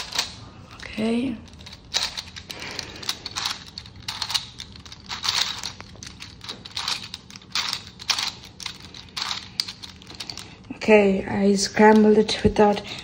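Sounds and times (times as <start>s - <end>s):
plastic puzzle cube clacking: 1.5s - 10.5s.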